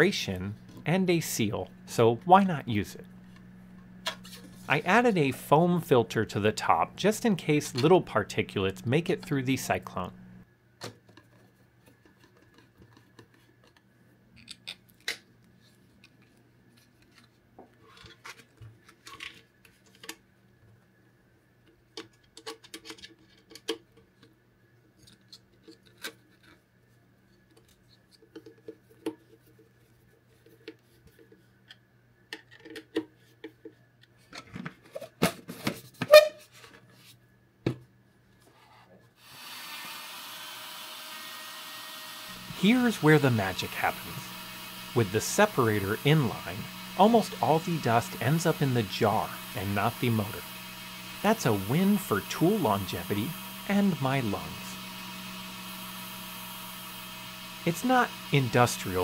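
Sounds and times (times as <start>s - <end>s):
handheld vacuum motor: 39.2s - 59.0s.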